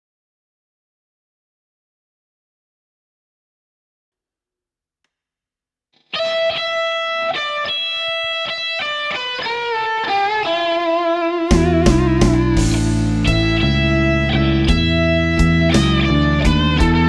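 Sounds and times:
solo electric guitar: 6.0 - 17.0.

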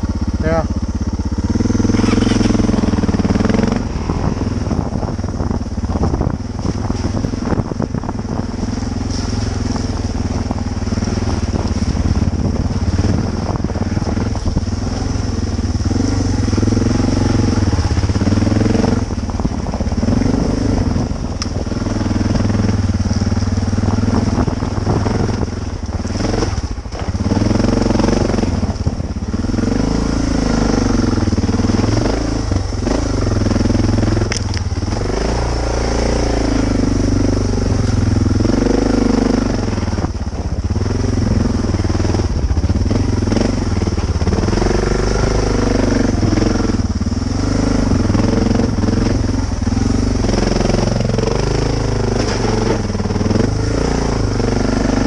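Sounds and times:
motorcycle engine revving: 0.0 - 55.0
bike knocks and rattles: 21.4 - 27.5.

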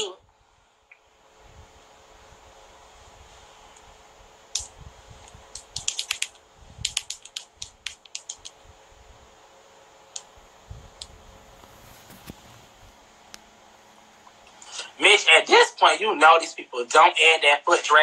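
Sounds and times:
fingernails clicking: 5.5 - 8.5.

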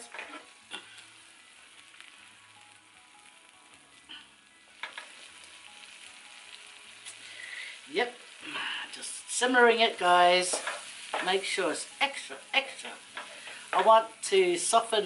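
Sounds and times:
food sizzling in frying pan: 0.0 - 15.0
pan knocking on burner grate: 10.4 - 11.4.

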